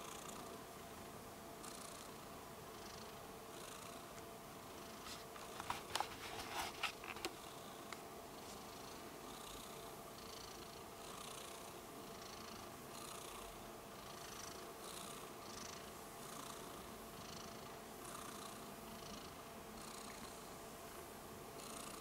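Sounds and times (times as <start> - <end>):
cat purring: 1.6 - 5.0, 7.2 - 20.6, 21.6 - 22.0.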